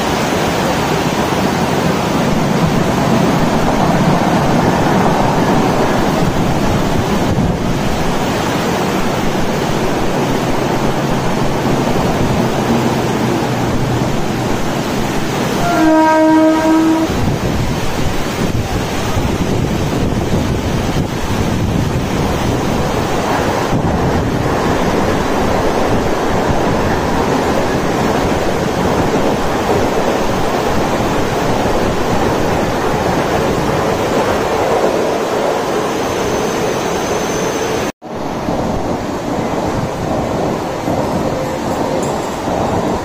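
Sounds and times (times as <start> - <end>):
wind and rain on microphone: 0.0 - 36.0, 38.0 - 43.0
electric train passing on tracks: 0.0 - 43.0.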